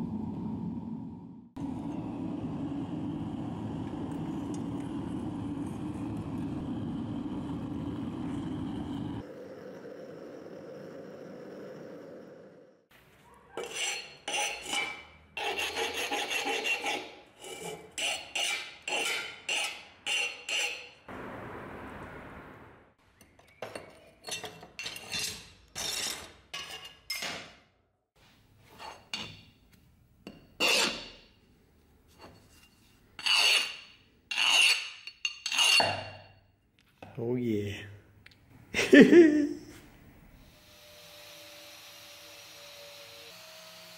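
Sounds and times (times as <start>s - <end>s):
oil burning rush: 0.0s - 12.9s
file rasping on steel: 13.6s - 21.0s, 30.6s - 31.2s, 33.2s - 36.0s.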